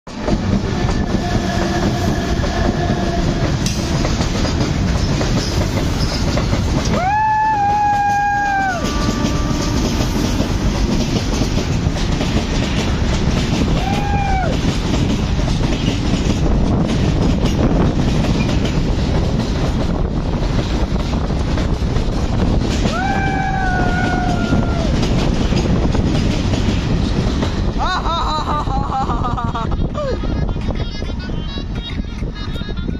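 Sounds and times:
train wheels rushing on rail: 0.1s - 32.9s
train horn: 0.8s - 4.2s, 7.0s - 10.7s.

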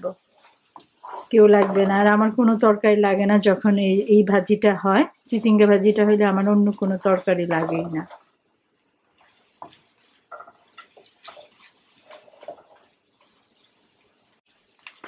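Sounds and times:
spatula scraping in a wok: 0.0s - 2.5s, 5.4s - 8.3s, 9.1s - 14.4s.

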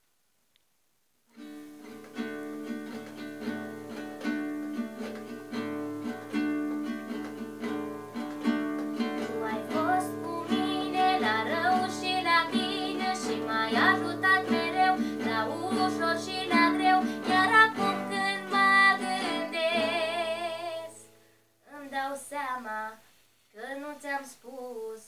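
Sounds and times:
acoustic guitar strumming chords: 1.4s - 21.2s
girl singing: 9.2s - 25.0s.

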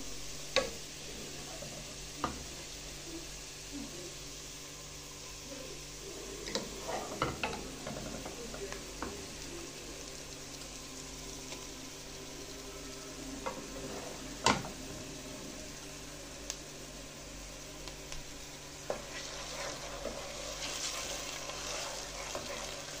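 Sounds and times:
onions sizzling in oil: 0.0s - 23.0s
wooden spoon stirring and scraping: 6.2s - 9.8s, 13.4s - 15.3s, 18.8s - 23.0s.

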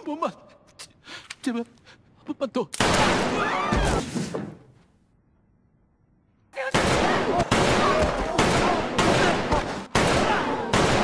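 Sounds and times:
gunfire: 2.8s - 3.5s, 6.7s - 11.0s.

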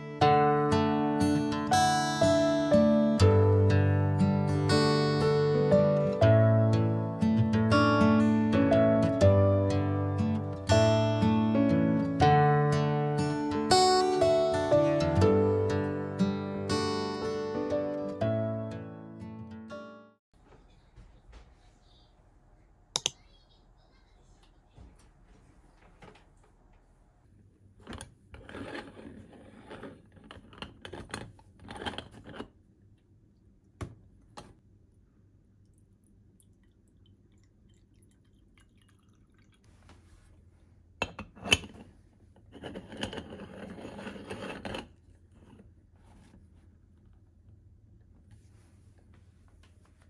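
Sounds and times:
water being poured: 35.6s - 39.8s.

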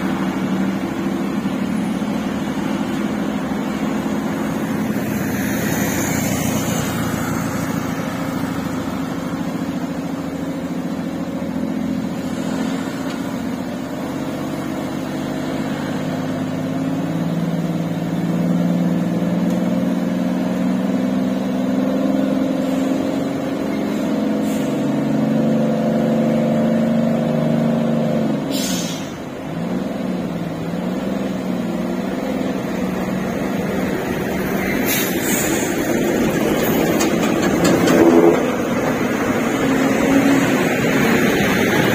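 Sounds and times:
truck diesel engine running: 0.0s - 25.5s, 26.6s - 41.9s
short air hiss: 24.4s - 25.0s, 28.5s - 29.2s, 34.8s - 35.7s.

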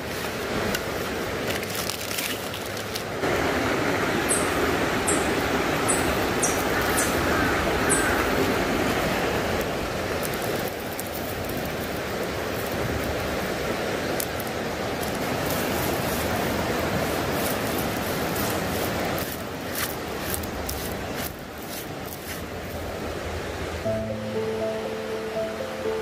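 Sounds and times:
handling clicks and rustling: 0.0s - 3.2s
creek water running: 0.0s - 26.0s.

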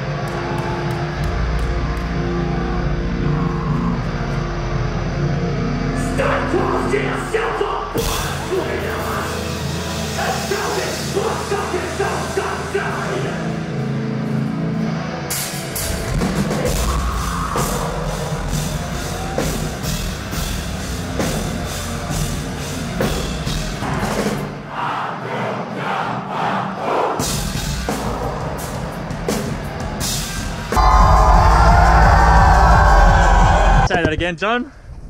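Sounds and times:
heavy metal music: 0.0s - 34.0s
drum and cymbal hits: 8.0s - 13.4s, 15.3s - 24.7s, 27.2s - 33.9s.

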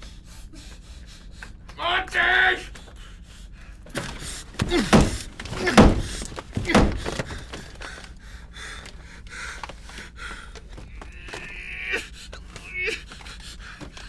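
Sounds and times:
man crying out: 1.8s - 2.7s, 4.6s - 6.0s, 11.2s - 13.1s
knocks and thuds against a wall: 3.9s - 7.9s.

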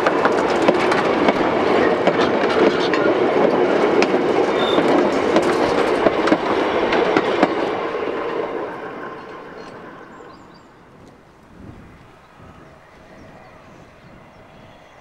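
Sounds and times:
train wheels clattering over rail joints: 0.0s - 11.3s.

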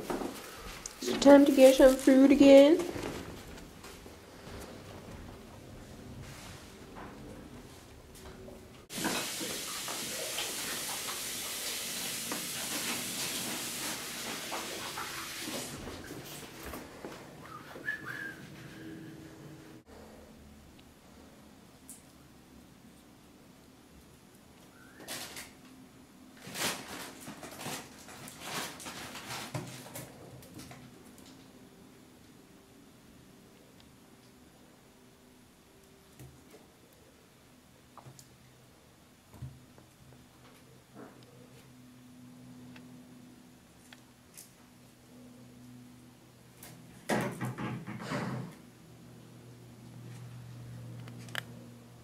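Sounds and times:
steady hiss: 8.8s - 16.8s.

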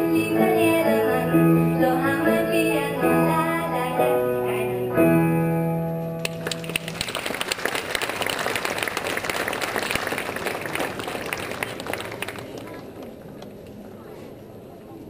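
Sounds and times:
audience applauding: 6.2s - 13.6s.

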